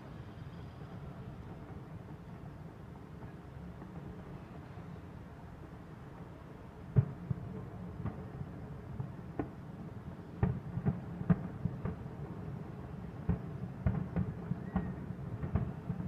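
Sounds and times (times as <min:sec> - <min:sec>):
distant fireworks bangs: 0:06.2 - 0:09.6, 0:10.2 - 0:16.0.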